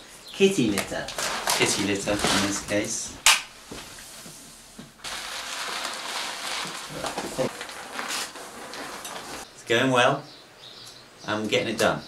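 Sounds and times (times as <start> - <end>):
cat litter pouring onto floor: 1.0 - 3.1, 5.0 - 9.5.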